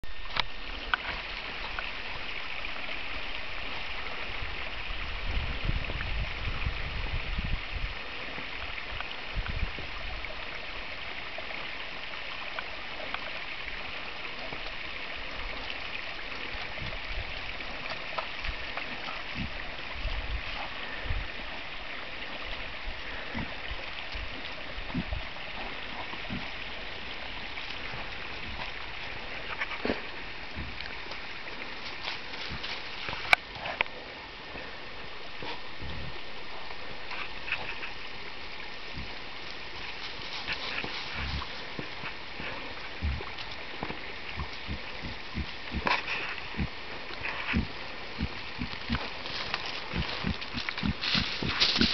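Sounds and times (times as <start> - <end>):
steady hissing noise: 0.1 - 51.9
low thumps and rumbles: 23.3 - 26.7, 40.7 - 51.9.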